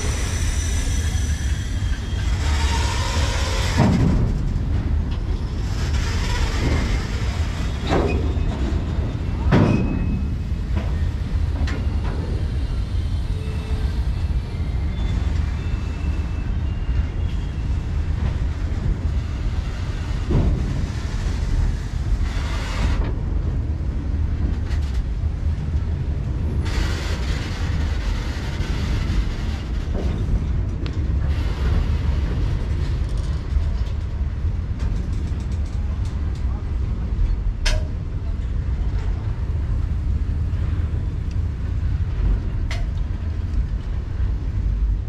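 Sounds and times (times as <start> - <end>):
freight train rumbling: 0.0 - 45.0.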